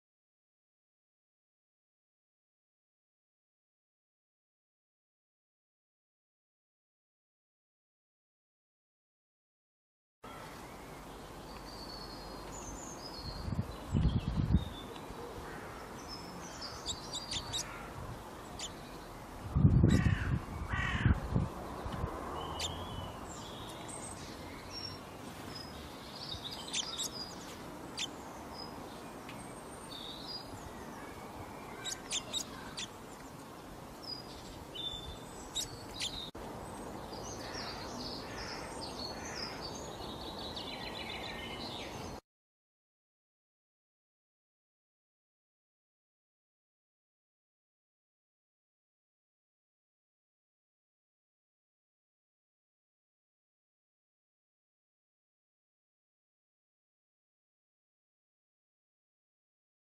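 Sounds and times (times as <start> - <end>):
garden birds chirping: 10.2 - 42.2.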